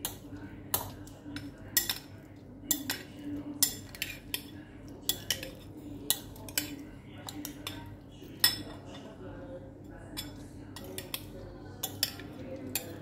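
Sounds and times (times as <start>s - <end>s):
metal spoon clinking in glass bowl: 10.2s - 13.0s.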